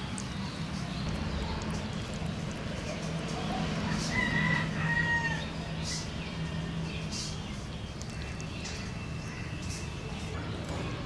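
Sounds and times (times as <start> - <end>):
outdoor background noise: 0.0 - 11.0
rooster crowing: 3.8 - 5.5.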